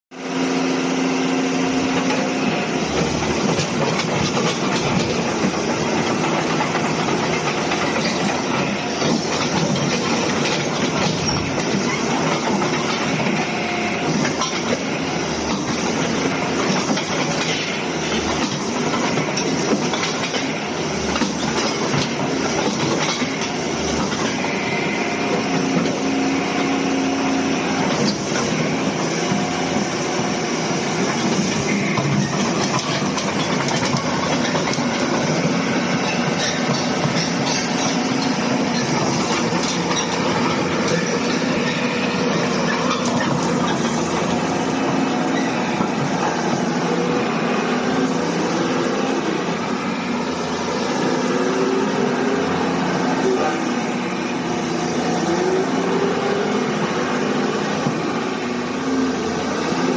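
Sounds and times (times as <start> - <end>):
excavator diesel engine running: 0.1 - 59.9
machine knocks and clanks: 1.8 - 24.6, 27.8 - 49.2.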